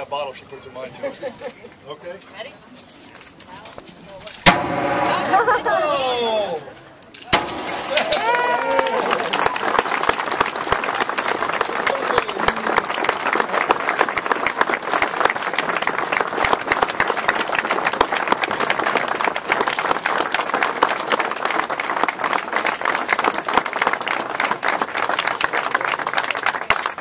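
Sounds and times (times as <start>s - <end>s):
crowd applauding: 7.8s - 27.0s.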